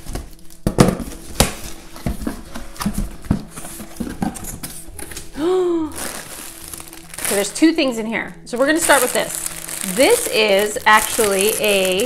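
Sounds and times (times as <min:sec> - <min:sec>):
cardboard knocks scrapes and rustles: 0:00.8 - 0:05.1.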